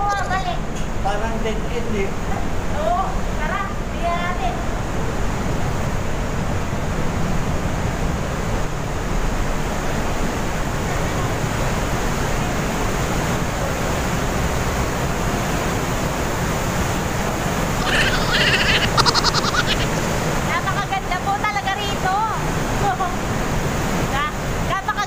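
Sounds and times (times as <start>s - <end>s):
waterfall roaring through gorge: 0.0s - 25.0s.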